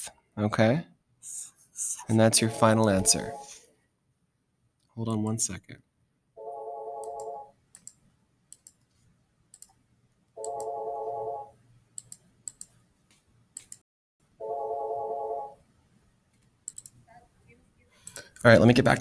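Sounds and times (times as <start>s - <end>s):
electronic telephone ringing: 2.4s - 3.5s, 6.4s - 7.5s, 10.4s - 11.5s, 14.4s - 15.6s
computer mouse clicks: 7.1s - 9.8s, 12.0s - 13.8s, 16.3s - 17.0s.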